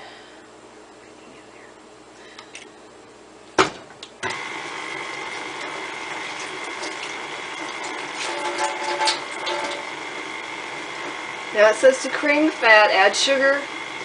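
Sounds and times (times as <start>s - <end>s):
paddle beating batter: 4.2s - 11.6s
stand mixer motor whining: 4.2s - 14.0s.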